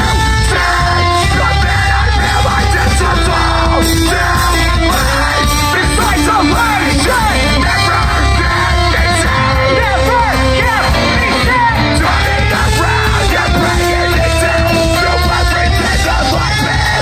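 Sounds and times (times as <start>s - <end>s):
metal band playing live: 0.0s - 17.0s.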